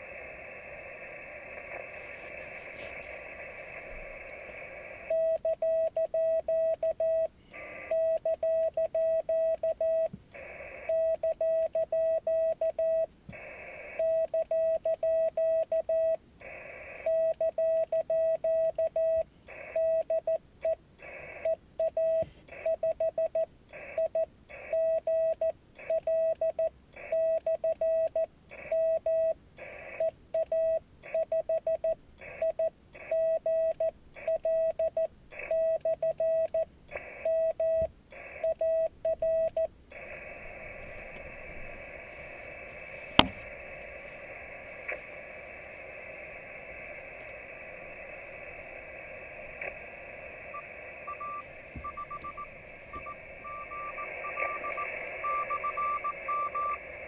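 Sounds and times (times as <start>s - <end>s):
receiver hiss: 0.0s - 57.0s
morse code tone: 50.5s - 56.8s.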